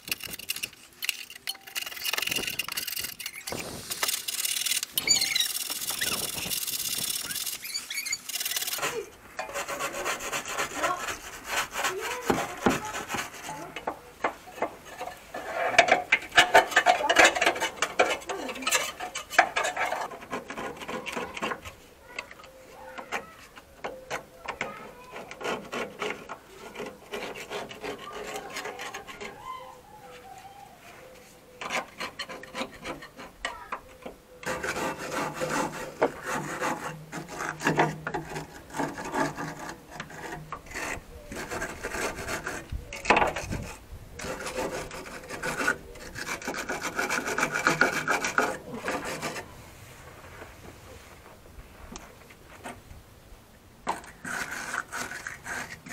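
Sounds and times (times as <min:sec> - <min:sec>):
brush scrubbing rust off steel: 0:00.0 - 0:51.0, 0:53.8 - 0:55.9.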